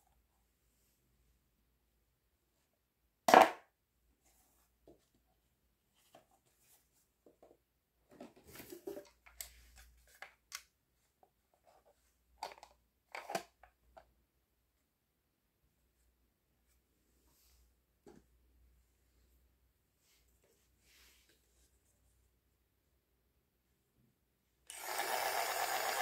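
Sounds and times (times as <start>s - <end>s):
plastic toy falling on table: 3.3s - 3.7s.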